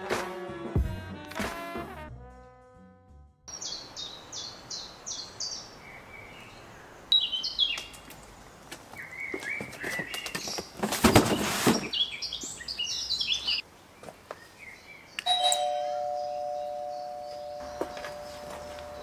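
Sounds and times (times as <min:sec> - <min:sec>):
bird chirps: 0:03.5 - 0:08.1, 0:09.0 - 0:13.6, 0:14.4 - 0:19.0
bell-like chime: 0:15.3 - 0:19.0.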